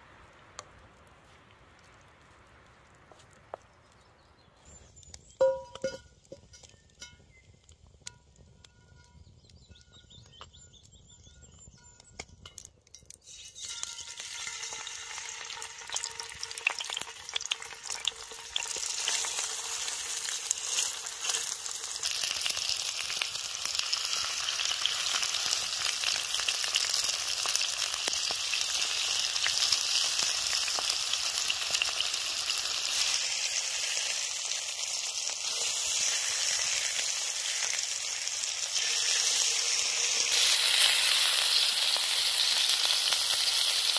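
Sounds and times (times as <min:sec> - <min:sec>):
fish sizzling in hot oil: 0:13.2 - 0:43.9.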